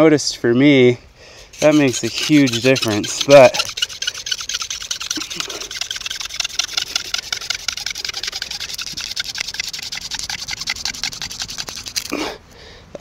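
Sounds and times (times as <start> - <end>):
hand drill rasping on wood: 1.5 - 12.2.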